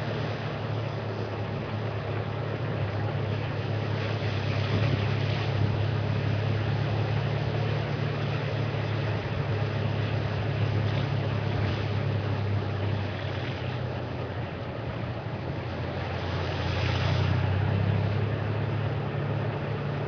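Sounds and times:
vehicle engine humming: 0.0 - 20.0
wind and road noise: 0.0 - 20.0.

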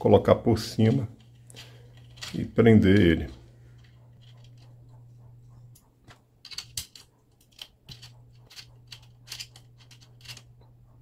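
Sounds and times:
allen key clicking on screw: 5.8 - 10.6.

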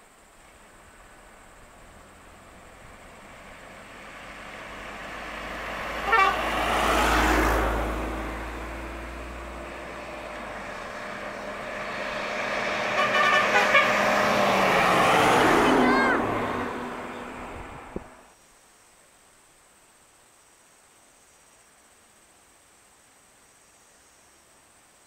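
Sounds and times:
low engine rumble: 0.2 - 18.3
bus engine approaching: 0.5 - 18.3
vehicle horn toots: 6.0 - 6.7, 12.8 - 14.4.

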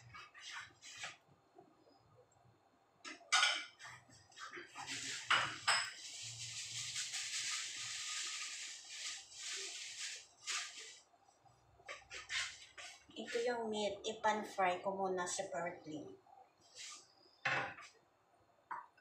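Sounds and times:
ceramic plates clattering: 3.1 - 4.0, 4.6 - 6.0
steady hiss: 4.2 - 11.1, 16.6 - 17.3.

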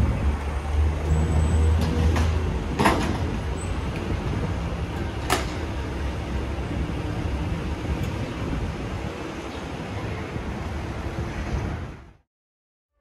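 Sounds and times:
traffic rumble: 0.0 - 12.2.

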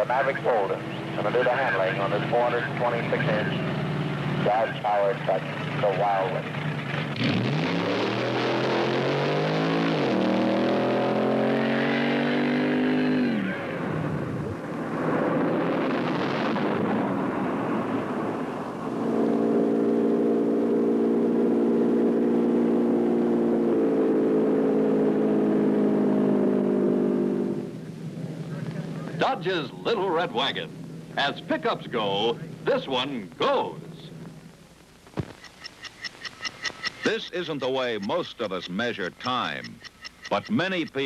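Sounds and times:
engine accelerating hard: 0.0 - 34.3
steady drone: 13.4 - 34.6.

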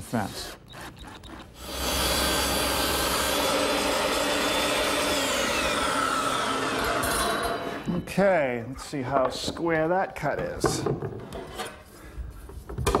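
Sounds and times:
table saw cutting panel: 1.6 - 7.8.

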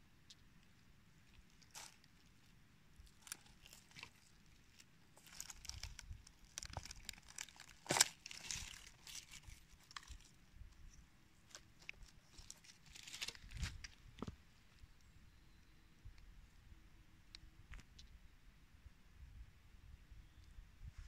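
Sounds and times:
leaves and twigs crackling: 0.3 - 14.9.

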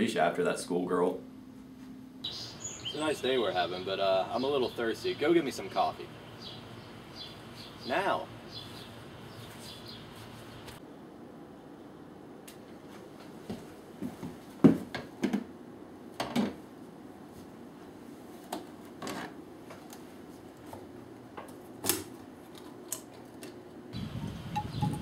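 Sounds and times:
low steady hum: 0.0 - 14.2.

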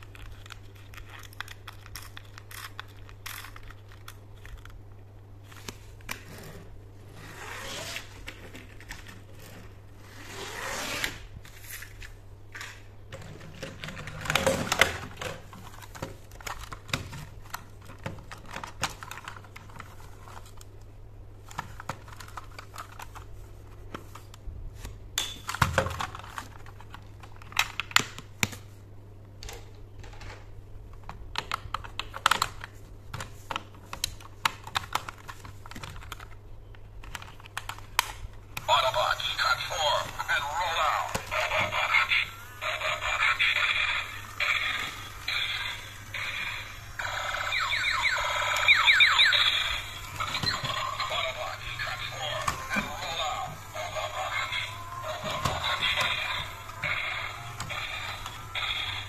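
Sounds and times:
steady low hum: 32.6 - 59.0.

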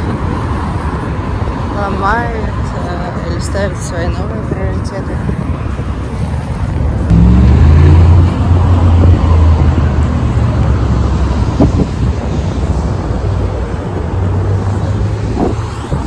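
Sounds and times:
wind buffeting microphone: 0.0 - 7.1, 11.2 - 16.0
city traffic: 0.0 - 16.0.

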